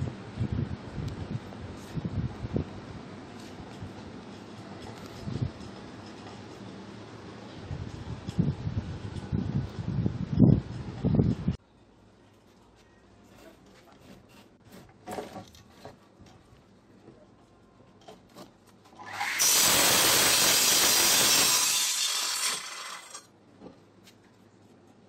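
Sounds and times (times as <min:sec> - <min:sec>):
miter saw cutting wood: 0:19.0 - 0:23.3.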